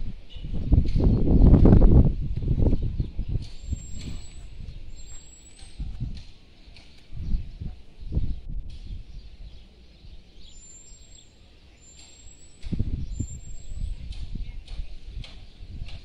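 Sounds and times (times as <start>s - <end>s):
low rumble on microphone: 0.0s - 10.6s, 12.5s - 16.0s
high bird whistles: 2.8s - 5.9s, 8.8s - 14.2s.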